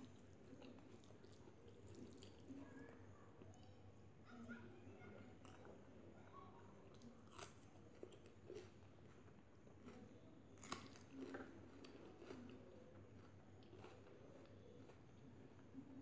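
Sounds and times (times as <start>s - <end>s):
person chewing food: 0.0s - 2.8s, 6.8s - 16.0s.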